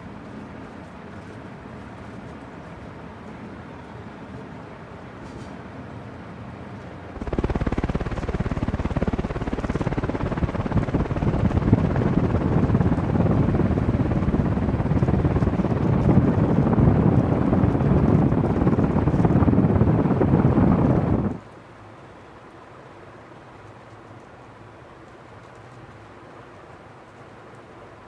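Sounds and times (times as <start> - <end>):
ceiling fan rushing air: 0.0 - 28.0
wind buffeting microphone: 7.2 - 21.4.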